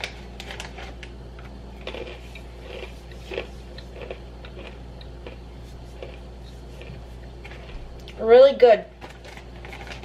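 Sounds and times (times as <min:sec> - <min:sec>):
person chewing crunchy pretzel: 0:01.7 - 0:08.2.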